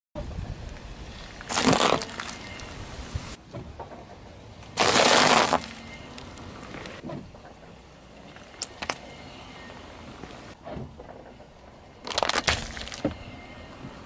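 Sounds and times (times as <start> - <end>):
tyre cracking plastic tube: 1.4 - 2.6, 4.8 - 6.9, 12.0 - 13.2
tyre crushing foil-wrapped chocolate: 1.5 - 2.4, 12.0 - 13.0.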